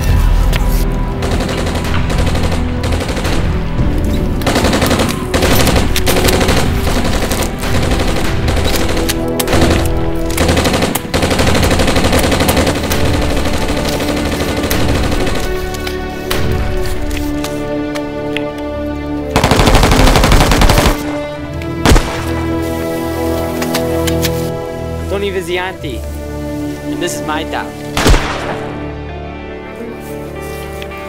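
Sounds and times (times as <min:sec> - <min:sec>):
background music: 0:00.0 - 0:31.0
rapid gunfire: 0:01.2 - 0:03.7, 0:04.4 - 0:15.5, 0:19.4 - 0:21.0.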